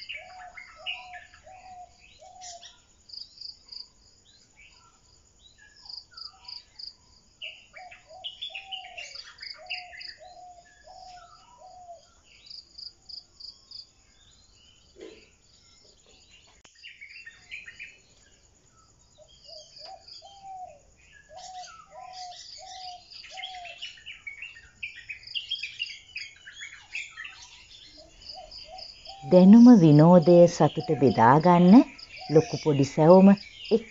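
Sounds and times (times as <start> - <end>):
higher bird chirps: 0.0 - 2.9, 4.6 - 12.6, 13.6 - 33.9
insects chirping: 0.0 - 33.9
high pulsing bird chirp: 15.6 - 33.9.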